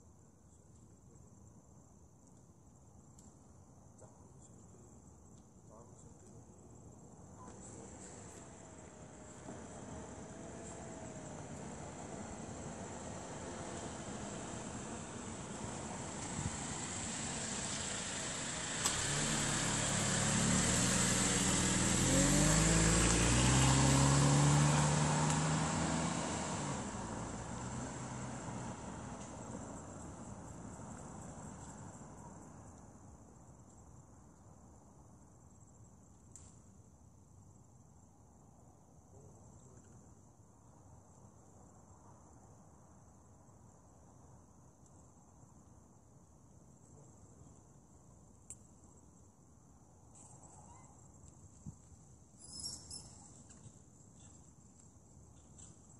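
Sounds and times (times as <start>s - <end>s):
vehicle engine passing: 7.6s - 32.2s
insects chirring: 46.4s - 55.9s.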